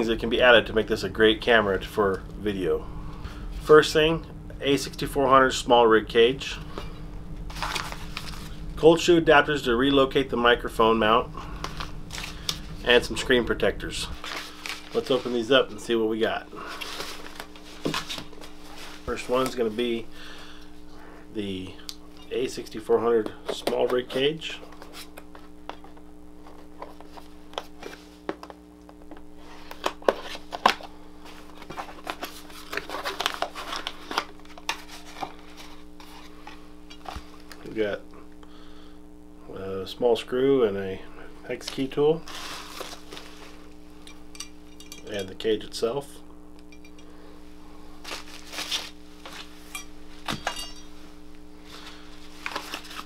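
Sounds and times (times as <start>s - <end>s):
low hum: 0.0s - 53.0s
cardboard handling scrapes: 7.5s - 8.6s, 14.1s - 15.5s, 16.6s - 20.0s, 29.4s - 37.4s, 42.2s - 43.6s, 48.0s - 50.3s, 51.7s - 53.0s
plastic packaging crinkling: 14.2s - 15.7s, 42.2s - 43.8s, 48.0s - 49.6s.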